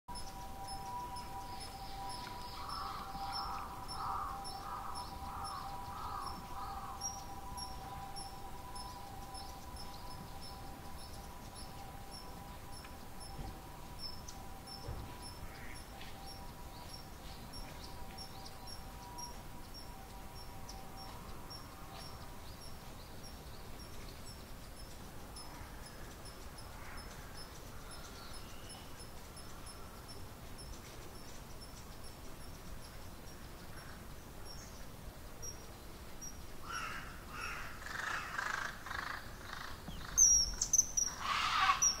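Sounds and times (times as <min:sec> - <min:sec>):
kingfishers calling: 0:00.9 - 0:08.8, 0:36.6 - 0:42.0
crow cawing: 0:02.6 - 0:07.2, 0:36.6 - 0:39.8, 0:41.1 - 0:42.0.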